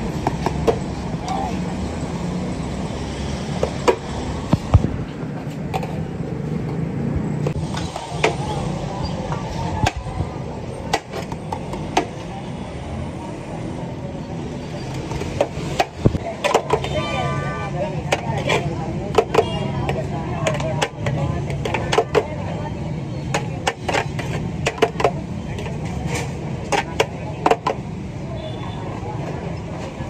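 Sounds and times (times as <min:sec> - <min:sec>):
plastic plates knocking on steel pot: 0:18.0 - 0:22.4, 0:23.3 - 0:25.2.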